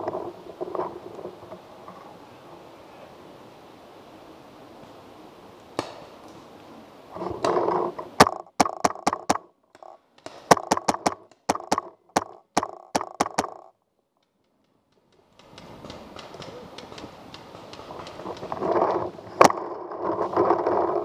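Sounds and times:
paintball marker firing: 0:08.2 - 0:18.4.

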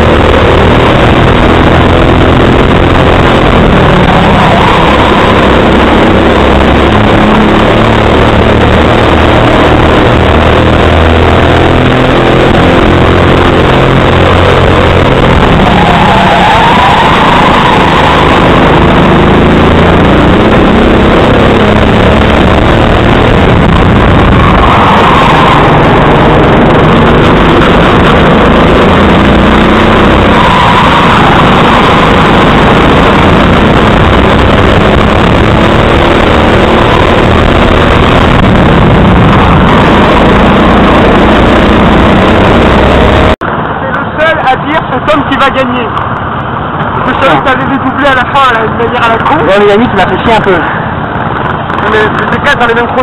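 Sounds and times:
go-kart engine at high revs: 0:00.0 - 0:53.0.

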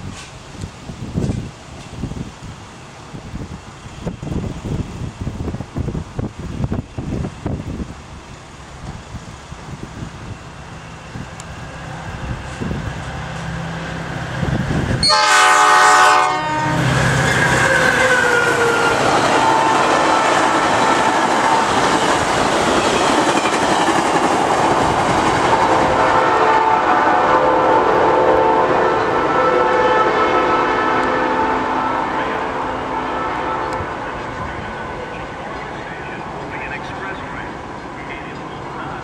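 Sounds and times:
diesel locomotive engine: 0:00.0 - 0:39.0
roar of wheels on rail: 0:00.0 - 0:39.0
train horn blast: 0:15.0 - 0:22.0, 0:25.5 - 0:35.3.

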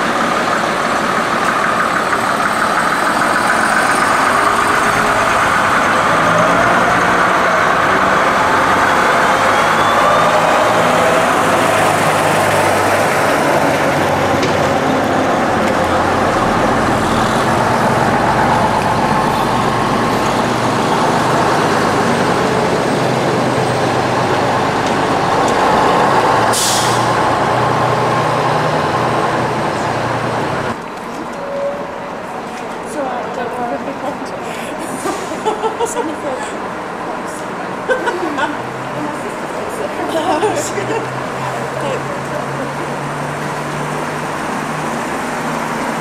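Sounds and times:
bus diesel engine: 0:00.0 - 0:46.0
air brake hiss: 0:26.5 - 0:27.2.

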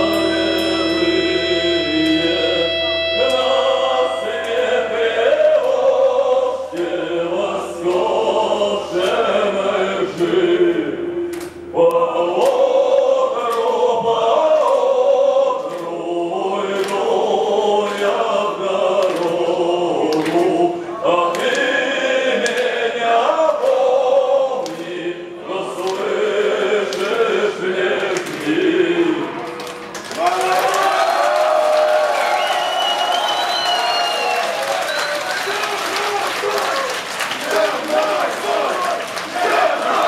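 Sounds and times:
low held note: 0:00.0 - 0:05.6
choir singing: 0:00.0 - 0:35.6, 0:37.3 - 0:40.0.

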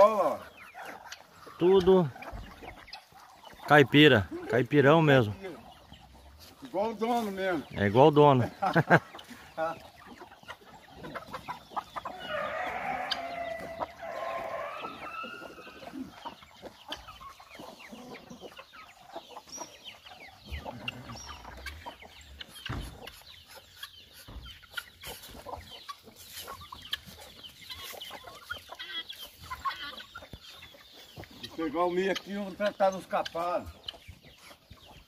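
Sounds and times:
chickens clucking and chirping: 0:00.0 - 0:35.0
rooster crowing: 0:12.1 - 0:15.4.

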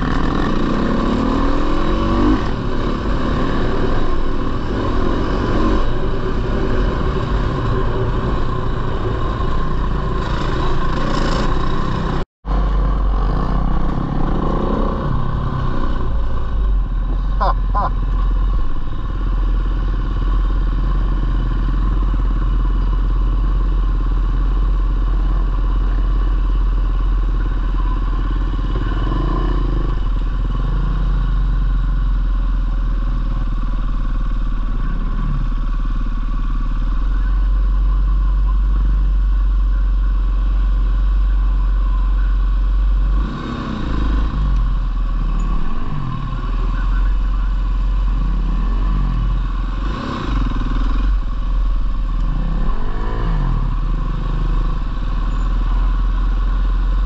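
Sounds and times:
dirt bike engine revving: 0:00.0 - 0:18.5, 0:42.8 - 0:56.0.

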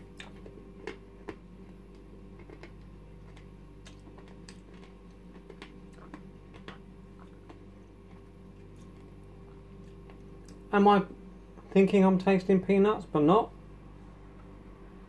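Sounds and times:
person chewing crunchy candy: 0:00.0 - 0:10.7.

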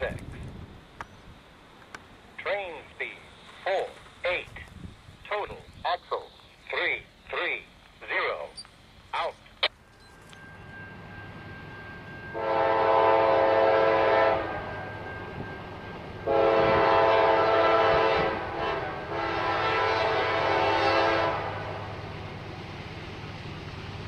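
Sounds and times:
low train rumble: 0:00.0 - 0:24.0
locomotive air horn blasts: 0:12.1 - 0:15.5, 0:16.2 - 0:21.9.

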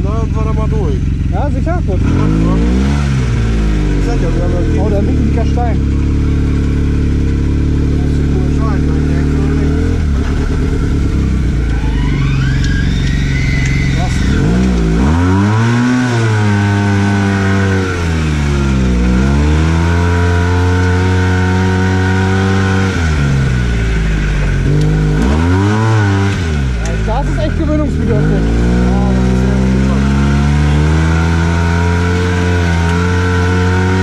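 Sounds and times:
engine revving: 0:00.0 - 0:34.0
thin rising whine: 0:06.3 - 0:19.9.

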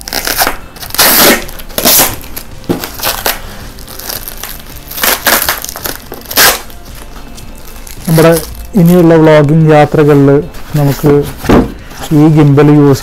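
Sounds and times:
packing tape ripping: 0:00.0 - 0:09.1.

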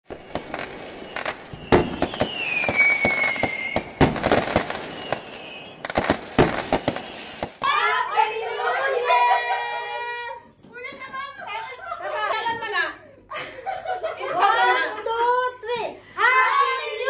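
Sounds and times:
firework whistle gliding down: 0:00.1 - 0:07.6
fireworks bangs and crackles: 0:00.1 - 0:07.8.

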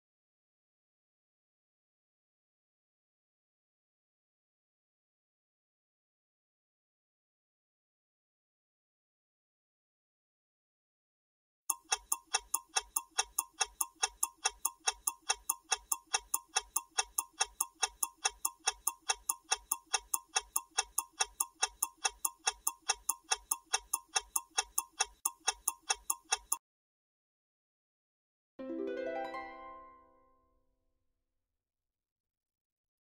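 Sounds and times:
rapid clock ticking: 0:11.7 - 0:26.6.

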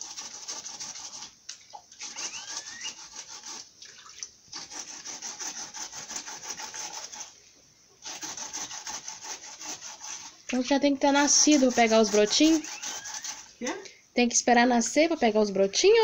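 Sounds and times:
root being grated by hand: 0:00.0 - 0:01.4, 0:02.0 - 0:03.8, 0:04.5 - 0:07.4, 0:08.0 - 0:13.8.

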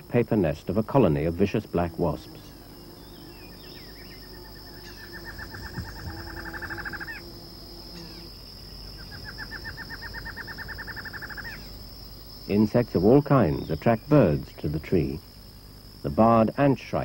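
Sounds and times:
high insect drone: 0:00.0 - 0:17.0
bird singing fast repeated notes: 0:01.6 - 0:11.8.

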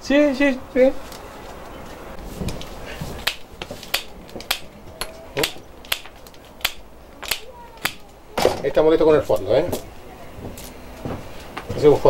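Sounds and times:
pruning shears snipping wicker: 0:02.5 - 0:08.1.

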